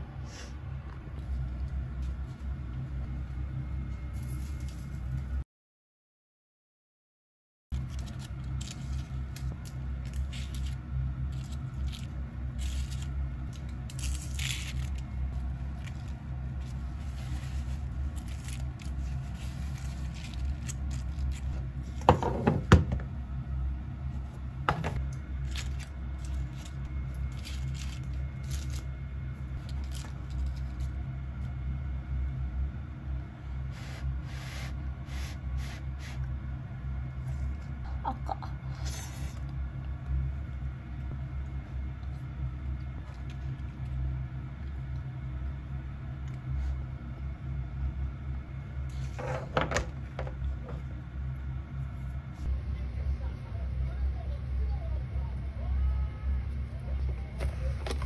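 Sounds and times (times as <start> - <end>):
steady low hum: 0.0 - 5.4, 7.7 - 58.0
paper and plastic handling noises: 7.8 - 22.0, 57.0 - 58.0.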